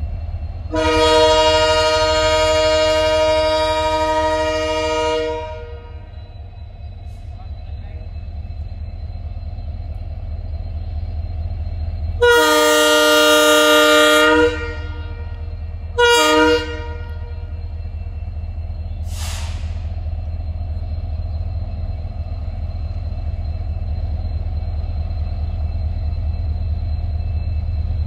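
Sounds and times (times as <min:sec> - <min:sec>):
diesel locomotive engine rumbling: 0:00.0 - 0:28.0
locomotive air horn blasts: 0:00.7 - 0:06.0, 0:12.2 - 0:15.4, 0:16.0 - 0:17.5.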